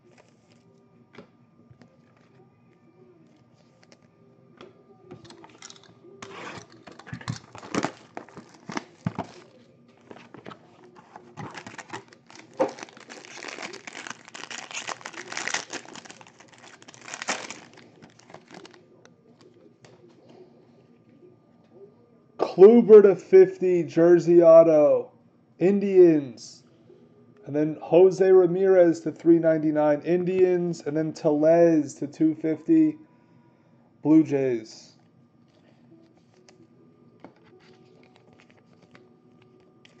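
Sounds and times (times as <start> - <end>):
foil wrapper crinkling and tearing: 6.6 - 9.4, 10.0 - 18.8.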